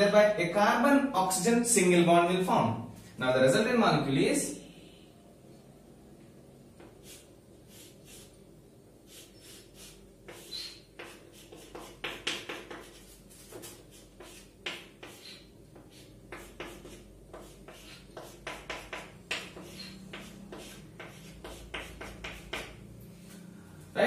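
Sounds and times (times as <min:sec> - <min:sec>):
chalk scratching on chalkboard: 0:06.8 - 0:08.4, 0:09.0 - 0:22.8
chalk squeak: 0:09.1 - 0:22.6.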